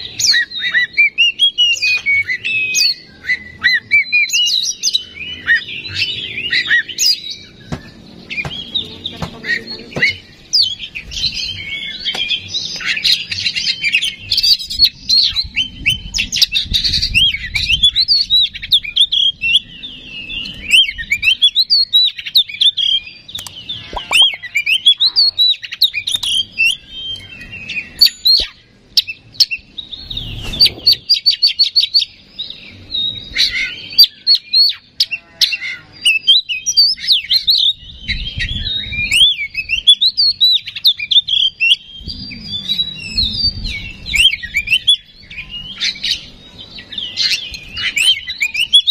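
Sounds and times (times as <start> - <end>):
bird singing varied whistles: 9.5 - 32.2, 36.1 - 48.9.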